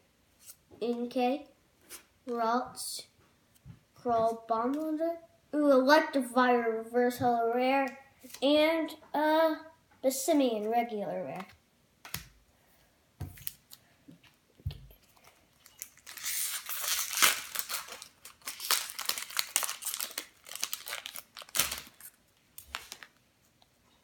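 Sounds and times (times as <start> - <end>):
foil wrapper crinkling and tearing: 15.1 - 23.2.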